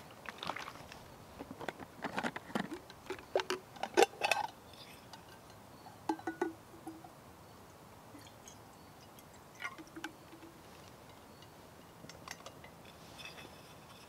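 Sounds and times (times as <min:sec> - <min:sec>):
kettle lid clinking: 0:06.1 - 0:07.0.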